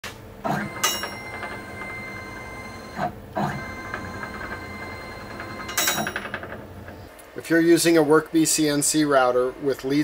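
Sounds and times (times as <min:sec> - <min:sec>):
stepper motor whine: 0:00.4 - 0:07.1.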